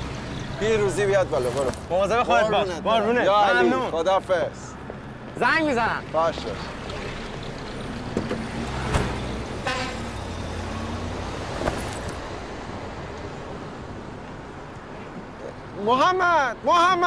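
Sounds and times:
vehicle engines running: 0.0s - 15.4s
car horn toot: 9.6s - 10.3s.

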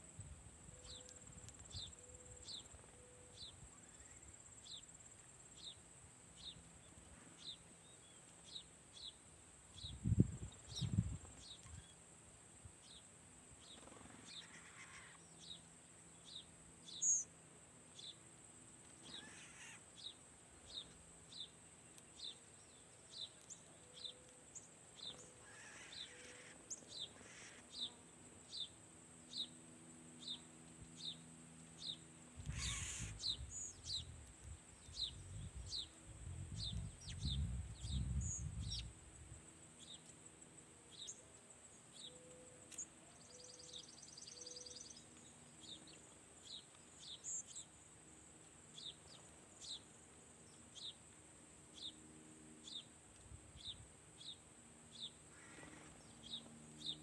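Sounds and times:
sparrow chirping: 19.0s - 21.5s, 31.8s - 34.1s.

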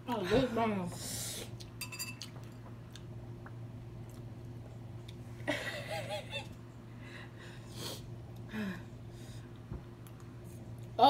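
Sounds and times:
faint steady hum: 0.0s - 11.0s
woman laughing: 5.5s - 6.5s.

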